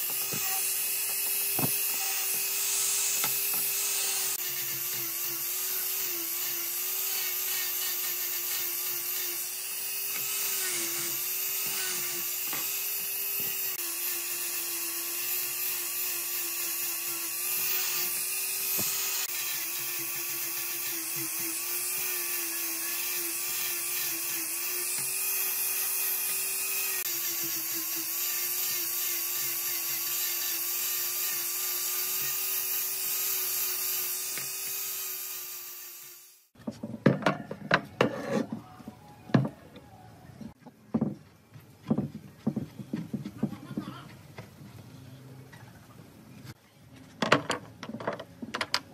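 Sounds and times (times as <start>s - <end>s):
angle grinder motor whine: 0.0s - 36.6s.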